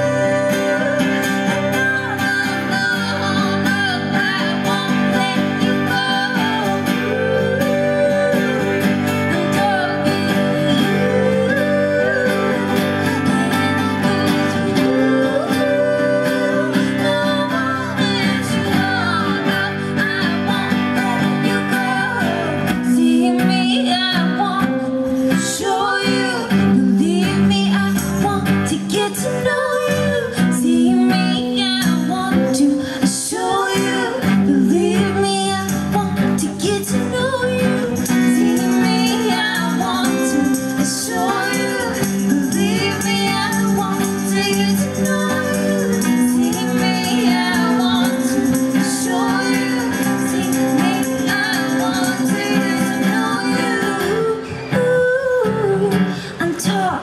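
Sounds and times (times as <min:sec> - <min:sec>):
live band with acoustic guitar: 0:00.0 - 0:57.0
woman singing: 0:00.0 - 0:57.0.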